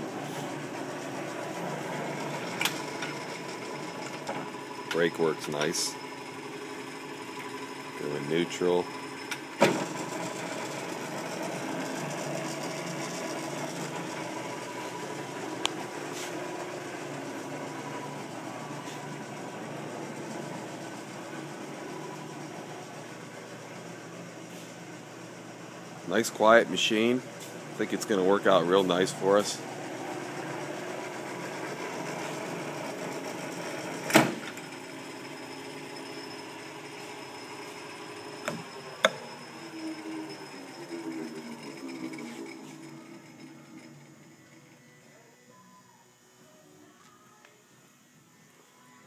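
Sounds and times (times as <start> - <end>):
lathe motor running: 0.0 - 45.2.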